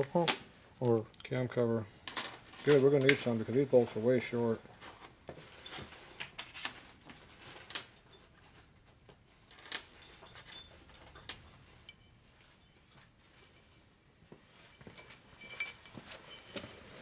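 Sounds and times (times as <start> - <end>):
steel bolts clinking on metal: 9.5 - 12.2.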